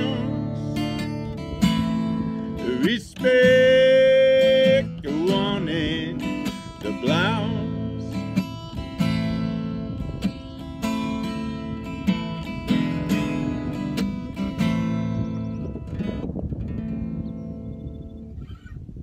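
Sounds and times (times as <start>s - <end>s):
man singing: 0.0s - 1.1s, 2.4s - 8.5s
strummed acoustic guitar: 0.0s - 17.8s.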